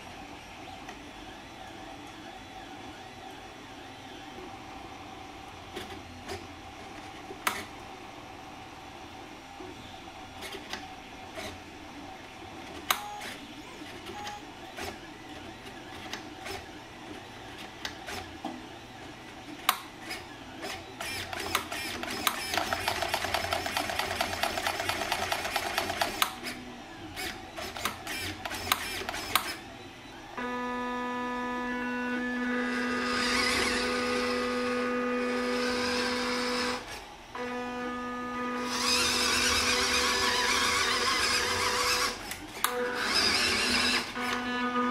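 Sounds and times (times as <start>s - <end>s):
toy motor and gearbox whine: 20.7s - 26.6s, 27.2s - 29.6s, 32.6s - 34.6s, 35.2s - 37.0s, 38.6s - 44.4s
servo buzzing and clicking: 27.2s - 29.6s, 33.0s - 34.2s, 38.6s - 44.4s.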